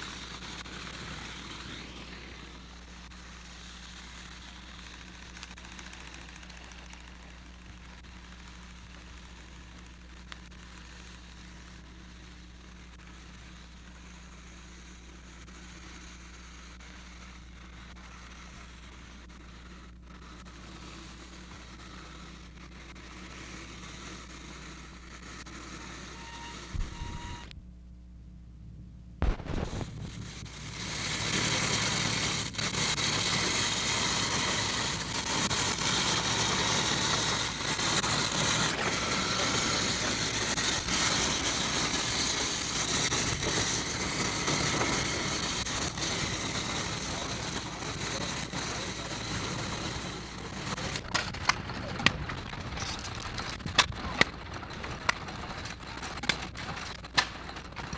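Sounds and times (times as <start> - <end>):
low hum: 0.0 - 57.9
sharp pop: 29.2 - 30.1
loud steady rushing noise: 29.2 - 51.9
scattered clicks: 51.0 - 57.9.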